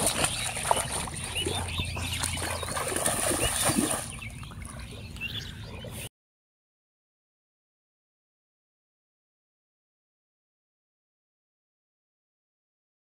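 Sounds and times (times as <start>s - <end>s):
pond water splashing: 0.0s - 6.0s
birds chirping: 0.0s - 6.1s.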